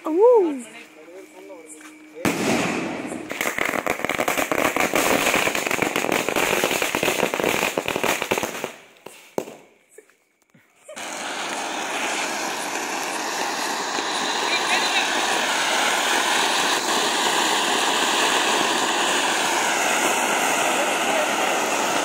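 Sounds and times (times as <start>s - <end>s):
firecrackers crackling: 2.1s - 10.0s, 10.9s - 22.0s
single firecracker pops: 2.2s - 9.7s
steady rushing hiss: 11.0s - 22.0s.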